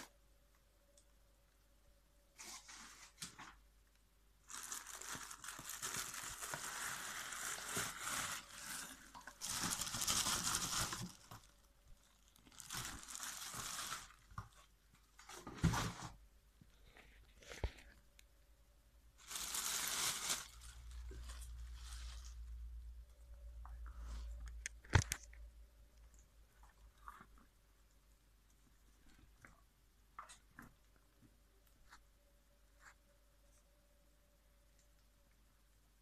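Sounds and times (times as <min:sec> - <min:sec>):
plastic bag crinkling: 0:04.4 - 0:15.8, 0:19.2 - 0:22.8.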